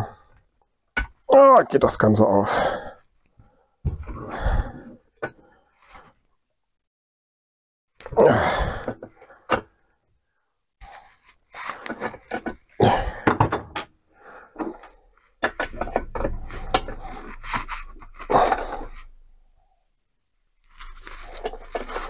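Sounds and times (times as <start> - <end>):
person grunting with effort: 8.1 - 8.9, 12.8 - 13.3, 18.3 - 19.0.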